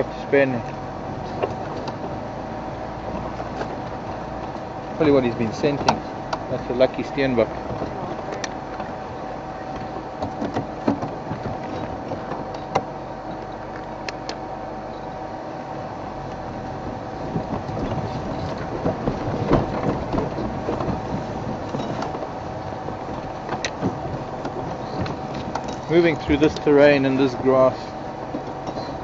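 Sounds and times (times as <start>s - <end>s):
body knocks and rattles: 0.0s - 15.3s, 16.2s - 29.0s
steady hum: 0.0s - 29.0s
vehicle engine running: 0.0s - 29.0s.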